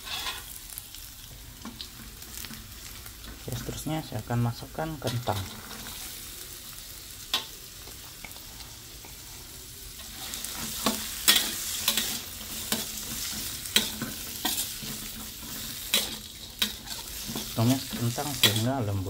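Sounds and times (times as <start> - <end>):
metal spatula scraping wok: 0.0 - 0.6, 9.9 - 19.0
potatoes sizzling in hot oil: 0.0 - 19.0.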